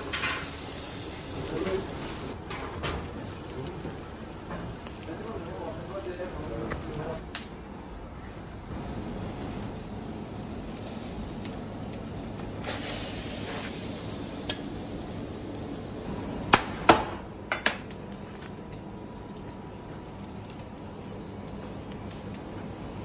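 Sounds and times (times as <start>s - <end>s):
kitchen background noise: 0.0s - 23.0s.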